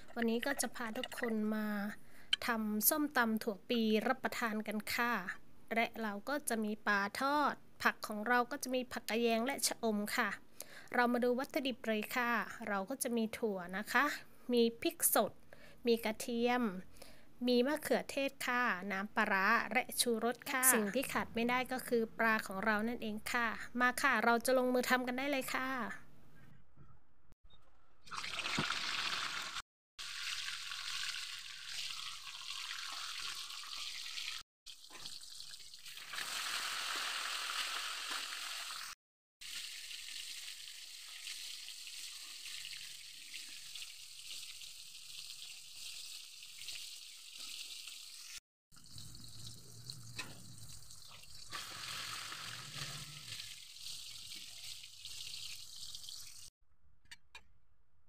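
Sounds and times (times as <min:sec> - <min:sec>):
fish sizzling in hot oil: 0:28.3 - 0:49.5, 0:50.2 - 0:56.5.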